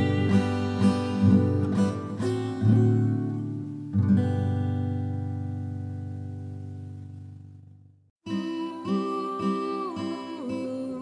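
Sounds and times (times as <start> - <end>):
acoustic guitar strumming chords: 0.0 - 7.6.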